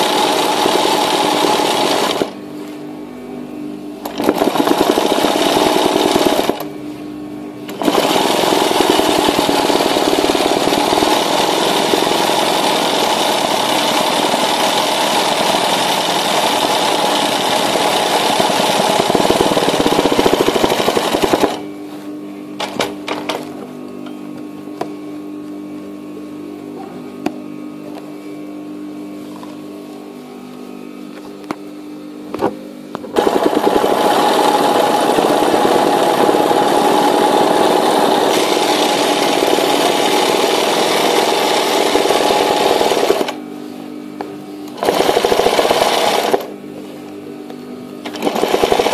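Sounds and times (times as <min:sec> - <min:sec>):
sewing machine stitching: 0:00.0 - 0:02.4, 0:04.0 - 0:06.6, 0:07.7 - 0:21.6, 0:33.2 - 0:43.4, 0:44.7 - 0:46.5, 0:48.0 - 0:48.9.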